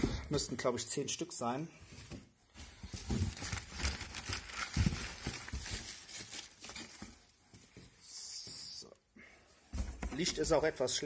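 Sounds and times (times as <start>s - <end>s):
paper and cardboard rustling: 1.8s - 8.0s.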